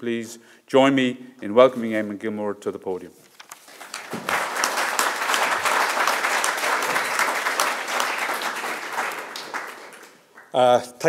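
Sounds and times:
audience applauding: 3.6 - 10.6.

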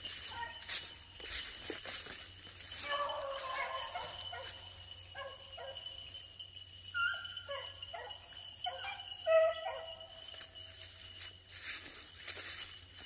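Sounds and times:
beagles baying and yipping: 0.0 - 12.8.

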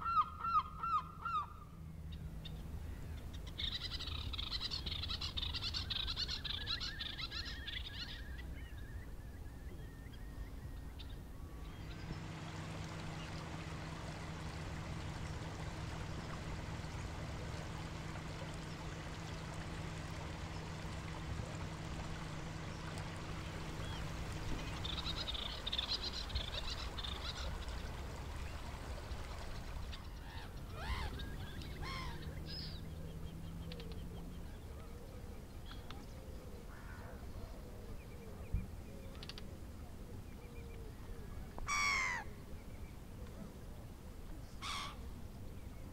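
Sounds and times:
bird calls swooping: 0.0 - 34.4
low hum: 0.0 - 41.6
birds chattering: 2.2 - 37.4.

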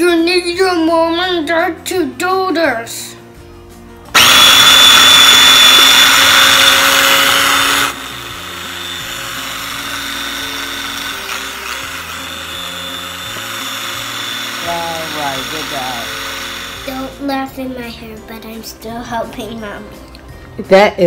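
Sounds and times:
soft background music: 0.0 - 4.2, 5.4 - 21.0
electric food chopper whining: 4.1 - 17.3.

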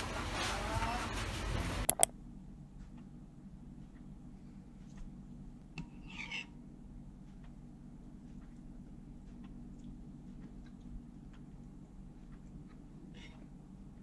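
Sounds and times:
low room hum: 0.0 - 14.0
metal spoon scraping bowl: 6.0 - 6.5.

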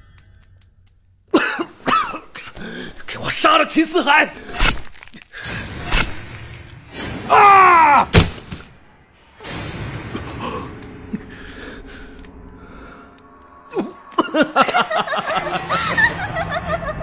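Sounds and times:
woman laughing: 14.2 - 17.0.

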